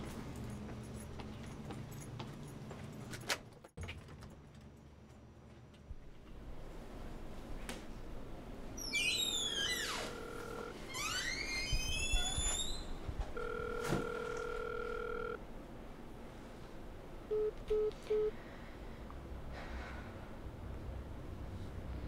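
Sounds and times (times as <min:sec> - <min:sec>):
telephone ring tone: 0:09.8 - 0:10.8, 0:13.4 - 0:15.4, 0:17.3 - 0:18.3.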